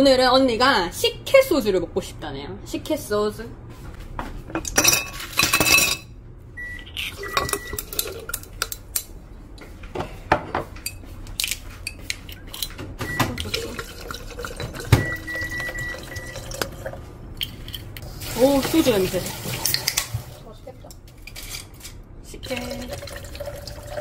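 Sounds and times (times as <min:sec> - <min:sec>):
dishes and glassware clinking: 0:04.5 - 0:06.1
liquid being poured: 0:13.4 - 0:17.6, 0:22.4 - 0:24.0.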